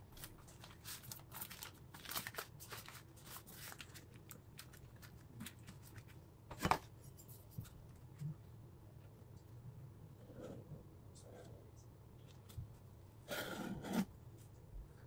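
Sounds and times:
baking paper crinkling: 0.0 - 6.2.

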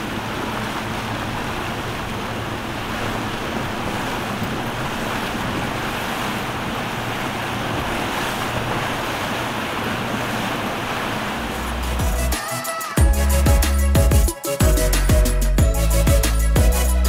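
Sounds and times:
choppy water: 0.0 - 17.0
wind: 0.0 - 17.0
deep bass music: 11.6 - 17.0.

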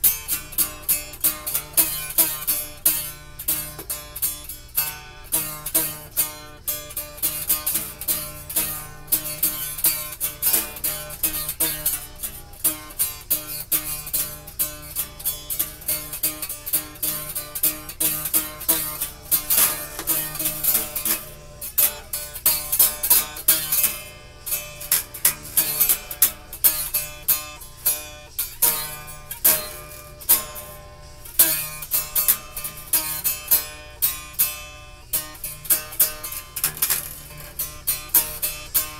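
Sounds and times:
acoustic guitar plucked: 0.0 - 38.9.

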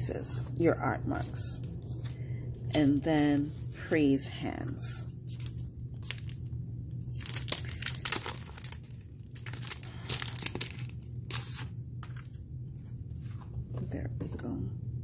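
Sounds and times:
plastic packaging crinkling: 5.3 - 12.4.

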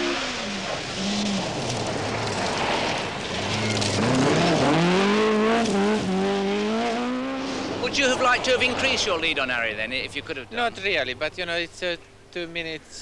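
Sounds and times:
tyres hissing on gravel: 0.0 - 4.2
rally car engine revving: 0.0 - 9.3.

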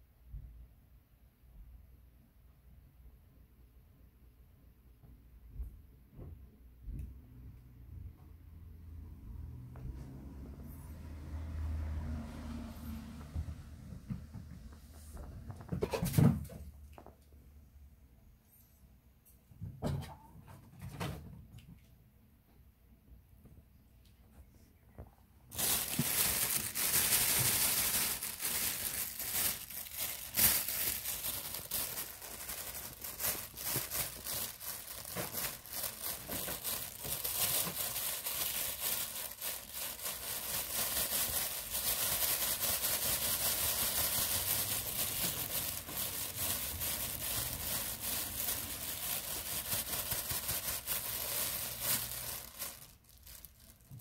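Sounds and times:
plastic bag crinkling: 25.5 - 54.0.

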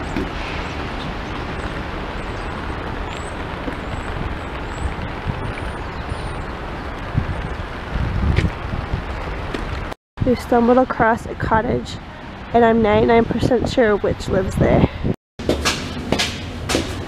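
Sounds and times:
small birds chirping: 0.0 - 7.8
distant city traffic: 0.0 - 17.0.

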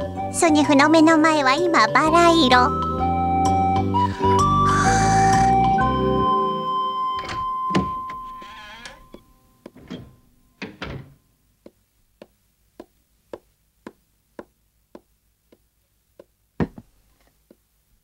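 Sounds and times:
background music: 0.0 - 8.4
wooden door clunking shut: 7.2 - 11.2.

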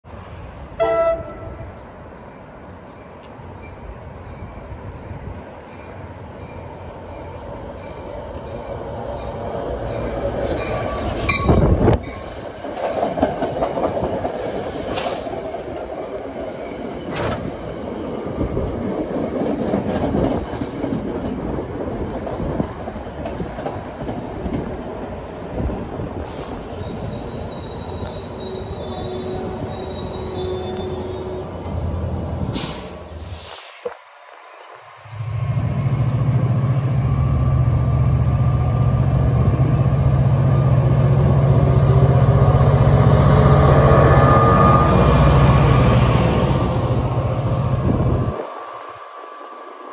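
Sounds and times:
train rumbling past: 0.1 - 49.9
train clanks: 5.6 - 24.9
wheels and brakes squealing: 16.6 - 17.5, 24.1 - 31.6.

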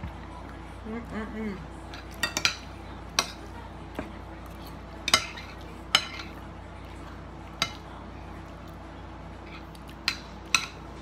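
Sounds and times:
forks clinking on plates: 1.9 - 3.5, 4.6 - 6.4, 9.5 - 11.0.

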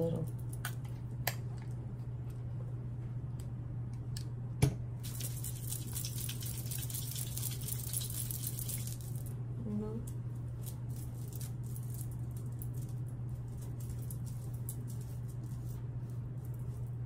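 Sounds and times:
hands rubbing oil: 5.0 - 9.2, 10.6 - 17.0.

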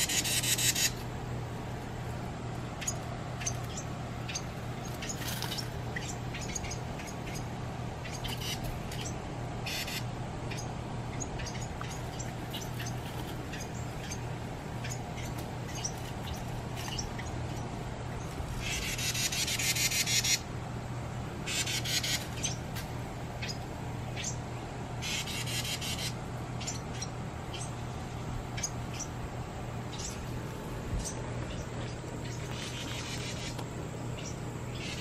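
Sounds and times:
bird chattering rattles: 0.0 - 1.0, 2.7 - 20.5, 21.5 - 22.7, 25.0 - 27.8, 29.9 - 30.2, 31.0 - 35.0
bird high chips: 0.0 - 1.1, 2.8 - 20.5, 21.5 - 22.7.

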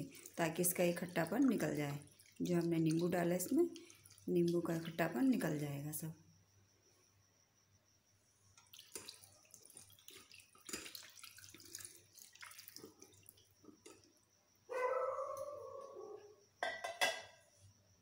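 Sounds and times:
hand working wet curds: 0.0 - 5.5, 8.6 - 13.4
water splashing over curds: 0.0 - 5.6, 8.6 - 13.5.

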